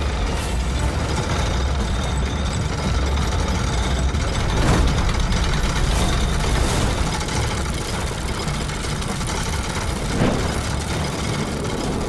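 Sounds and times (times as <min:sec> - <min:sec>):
metal gears rumbling: 0:00.0 - 0:12.0.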